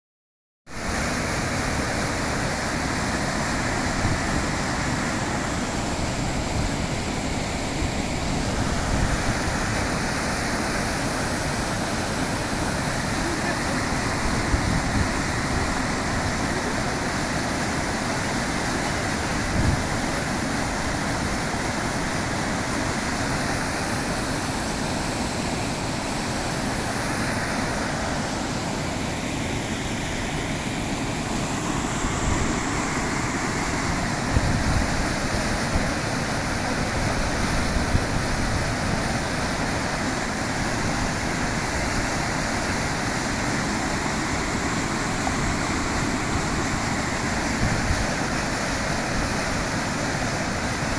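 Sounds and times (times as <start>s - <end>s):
waterfall and rapids rushing: 0.7s - 50.9s
wind buffeting microphone: 13.7s - 16.6s, 19.3s - 20.1s, 32.0s - 39.2s, 44.0s - 49.6s.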